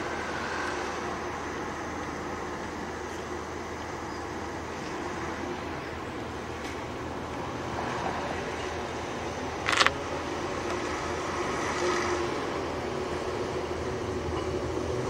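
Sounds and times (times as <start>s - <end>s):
diesel railcar engine rumble: 0.0s - 15.0s.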